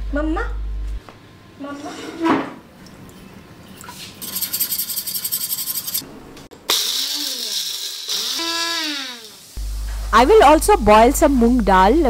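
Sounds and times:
whisk scraping a steel bowl: 0:04.2 - 0:06.1
mixer grinder motor: 0:06.7 - 0:09.6.

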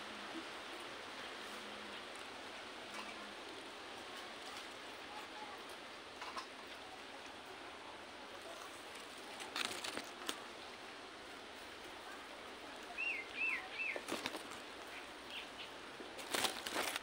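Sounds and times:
leaves rustling: 0:00.0 - 0:17.0
parrot wings flapping: 0:09.0 - 0:10.5, 0:14.0 - 0:14.7
bird chirping: 0:12.9 - 0:15.8.

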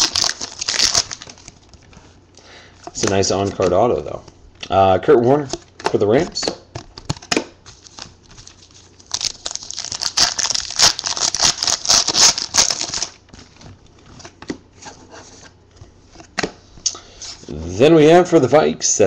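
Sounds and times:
plastic packaging crackling: 0:00.0 - 0:02.0, 0:07.0 - 0:13.9.

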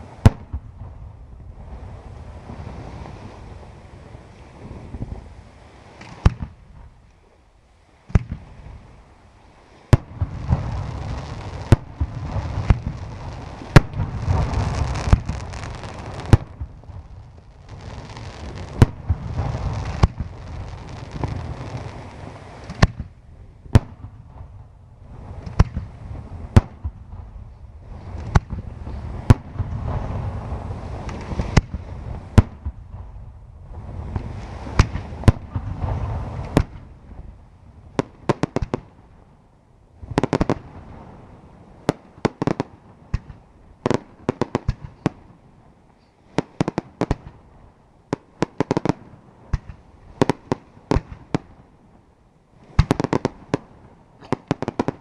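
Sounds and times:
fireworks bursting: 0:09.9 - 0:37.2, 0:37.9 - 0:39.1, 0:40.0 - 0:41.2, 0:41.8 - 0:45.4, 0:46.3 - 0:47.5, 0:48.1 - 0:51.7, 0:52.6 - 0:55.0.

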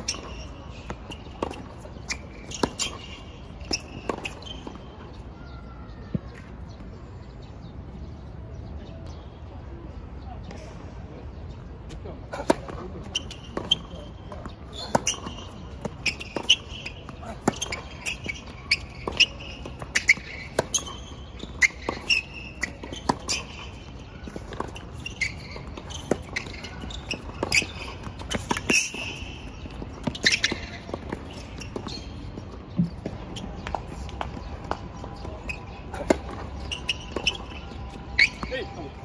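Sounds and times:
tennis ball bouncing on court: 0:00.0 - 0:04.8, 0:12.4 - 0:38.6.

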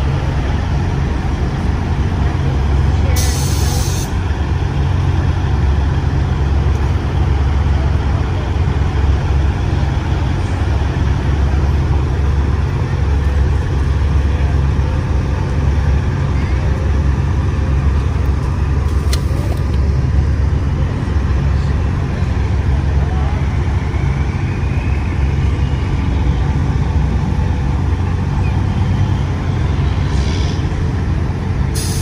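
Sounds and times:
diesel engine rumbling: 0:00.0 - 0:32.0
air brake hiss: 0:03.2 - 0:04.2, 0:31.7 - 0:32.0.

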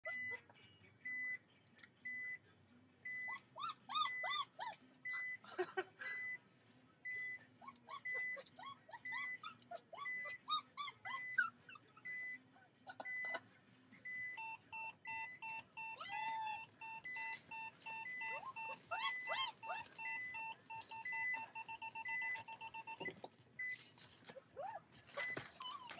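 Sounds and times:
dogs whining: 0:00.0 - 0:00.5, 0:02.2 - 0:05.4, 0:07.1 - 0:13.4, 0:14.0 - 0:25.9
car reversing beeps: 0:14.0 - 0:23.9.

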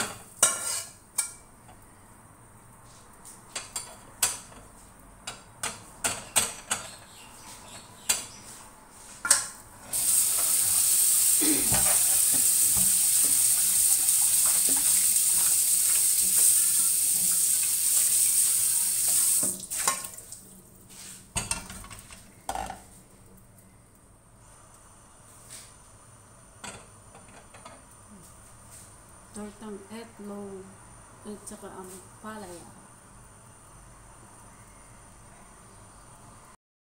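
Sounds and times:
metal spatula scraping a plate: 0:00.4 - 0:01.0
running water hissing: 0:09.9 - 0:21.3.

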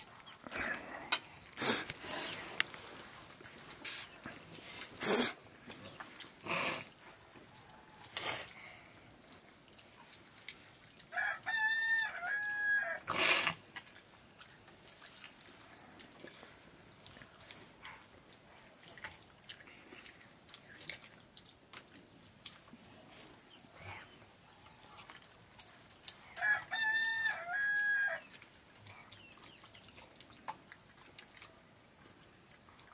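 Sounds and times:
rooster crowing: 0:11.1 - 0:13.1, 0:26.4 - 0:28.2.

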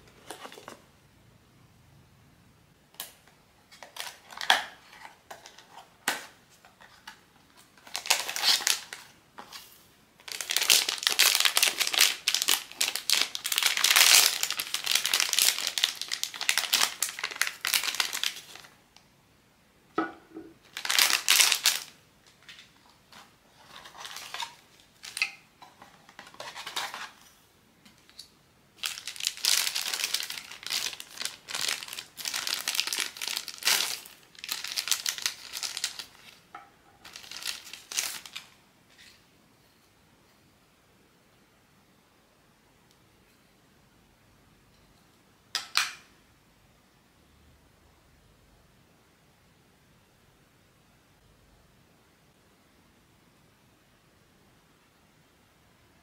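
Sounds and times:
plastic wrapping crinkling: 0:03.8 - 0:18.8, 0:20.6 - 0:27.2, 0:28.0 - 0:38.6.

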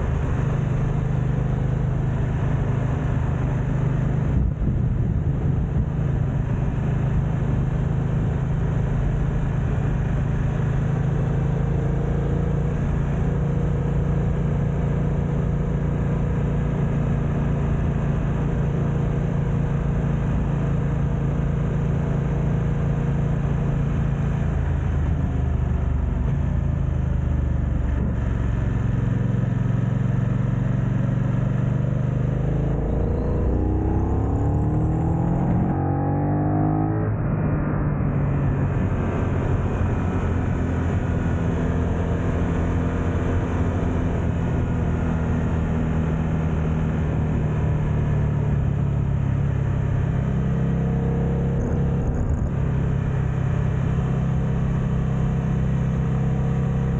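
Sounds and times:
motorcycle engine running: 0:00.0 - 0:36.0
wind noise on microphone: 0:04.3 - 0:07.1.

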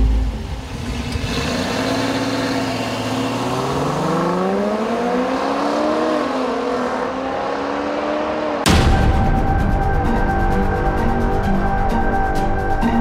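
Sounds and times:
engines accelerating at full throttle: 0:00.0 - 0:08.8.

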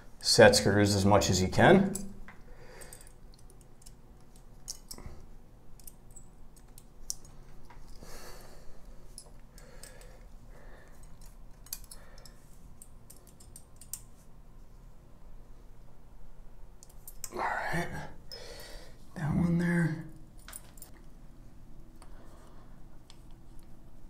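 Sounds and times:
small metallic clicks and ticks: 0:01.9 - 0:05.1, 0:05.8 - 0:08.0, 0:11.0 - 0:14.1.

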